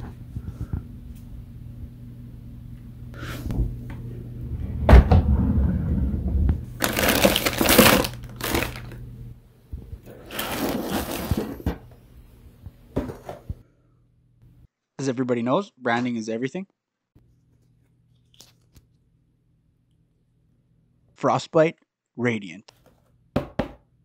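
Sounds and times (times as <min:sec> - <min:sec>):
plastic packaging crinkling: 0:06.8 - 0:09.0, 0:10.2 - 0:11.4.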